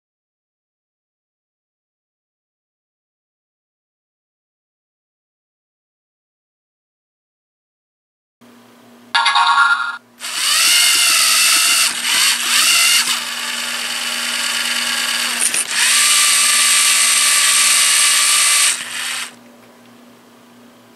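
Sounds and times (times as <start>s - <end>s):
electric motors whining: 10.2s - 19.4s.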